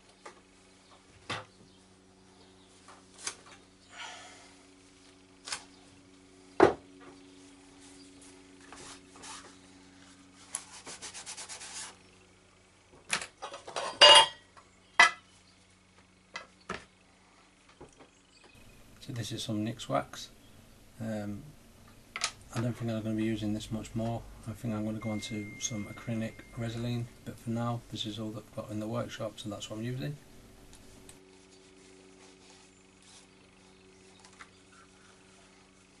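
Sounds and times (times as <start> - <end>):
faint low hum: 0.0 - 36.0
cloth rag rubbing: 7.4 - 12.0, 31.2 - 33.8.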